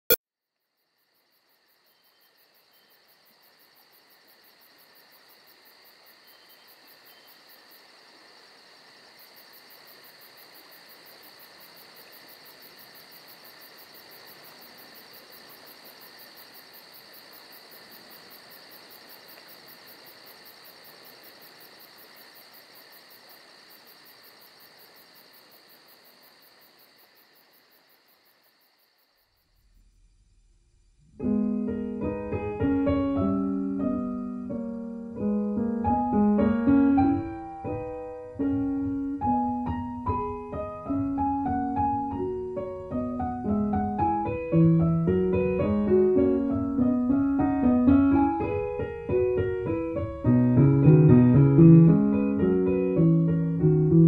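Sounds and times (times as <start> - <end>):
chirring insect chorus: 0.6 - 31.0.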